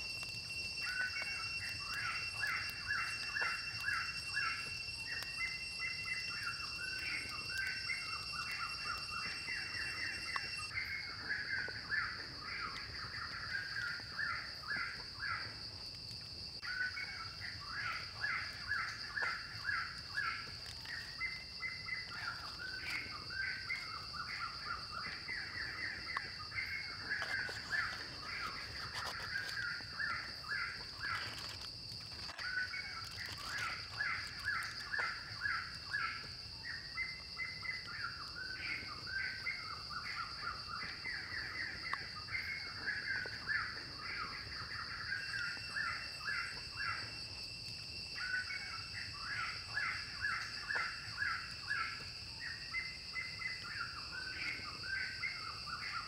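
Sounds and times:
high-pitched insect buzz: 0:00.0 - 0:36.4.

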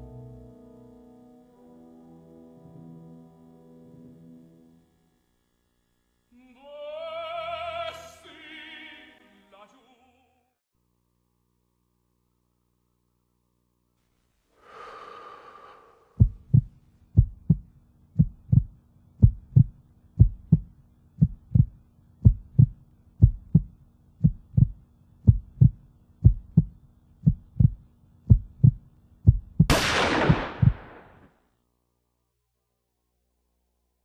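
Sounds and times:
breathy sound: 0:14.6 - 0:16.4
heartbeat thumping: 0:16.2 - 0:31.1
gunshot: 0:29.7 - 0:31.3.

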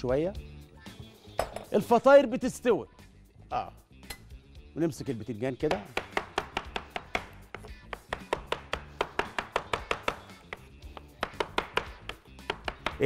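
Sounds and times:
soft background music: 0:00.0 - 0:13.0
knife chopping on wooden board: 0:05.7 - 0:13.0.

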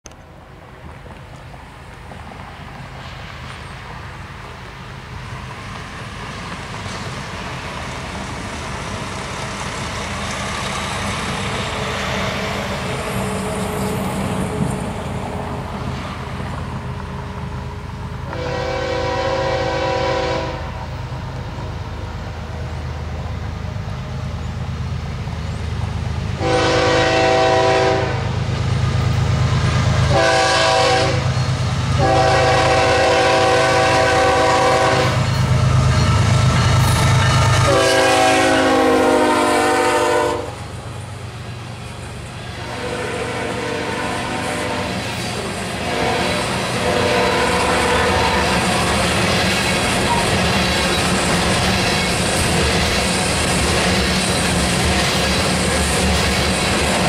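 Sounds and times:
diesel locomotive engine rumble: 0:00.0 - 0:57.0
multi-tone air horn: 0:18.3 - 0:20.7, 0:26.4 - 0:28.3, 0:30.1 - 0:31.2, 0:32.0 - 0:35.2, 0:37.7 - 0:40.6, 0:42.6 - 0:45.0, 0:45.8 - 0:48.5.

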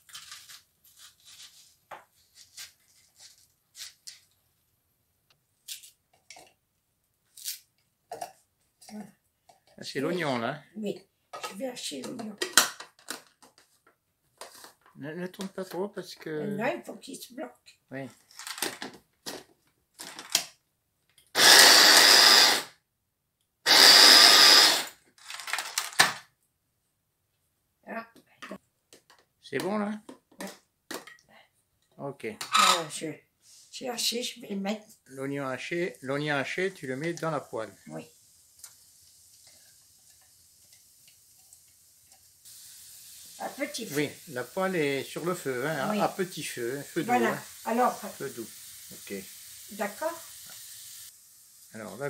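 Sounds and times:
mini chopper motor running: 0:21.4 - 0:22.7, 0:23.7 - 0:24.9.

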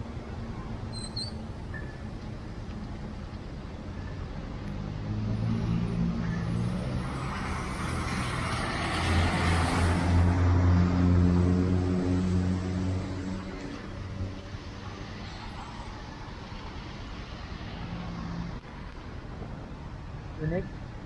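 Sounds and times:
low hum of engines: 0:00.0 - 0:21.0
vehicle passing close by: 0:04.6 - 0:14.4.

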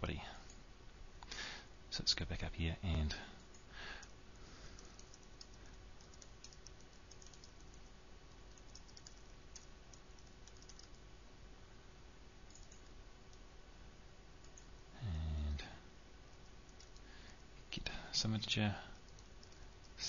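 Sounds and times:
typing on keyboard: 0:04.8 - 0:11.0, 0:12.5 - 0:13.0, 0:16.4 - 0:17.0, 0:19.0 - 0:20.0.

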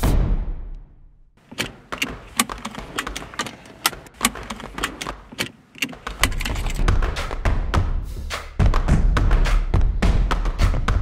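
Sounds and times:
seat belt buckles clicking: 0:01.4 - 0:06.9.

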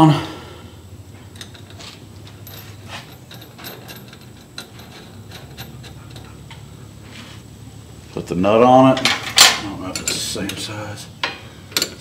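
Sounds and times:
low steady hum: 0:00.0 - 0:12.0
metal parts clicking: 0:01.3 - 0:06.7, 0:11.7 - 0:12.0.

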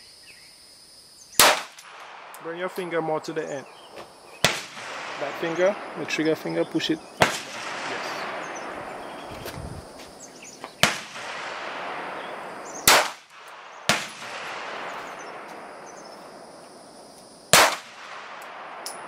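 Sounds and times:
pistol shots: 0:01.4 - 0:03.4, 0:04.4 - 0:09.3, 0:10.8 - 0:16.5, 0:17.5 - 0:19.0.

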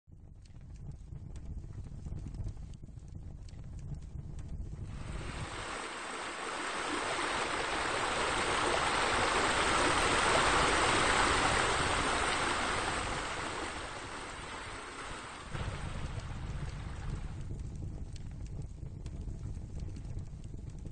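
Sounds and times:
low rumble: 0:00.3 - 0:20.9
water splashing into pool: 0:04.9 - 0:17.4.

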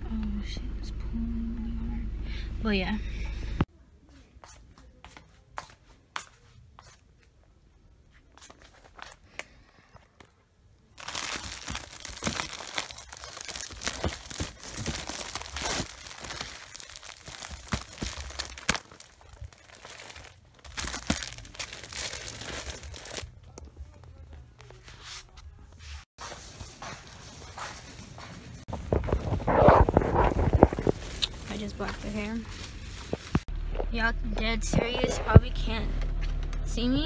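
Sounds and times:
plastic wrappers crinkling: 0:11.0 - 0:24.2, 0:26.7 - 0:33.5.

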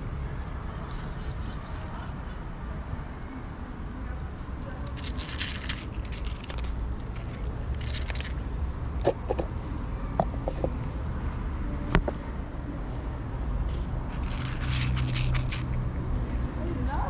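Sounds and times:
distant traffic rumble: 0:00.0 - 0:17.0
cats crunching dry kibble: 0:04.6 - 0:09.4, 0:14.1 - 0:15.8.

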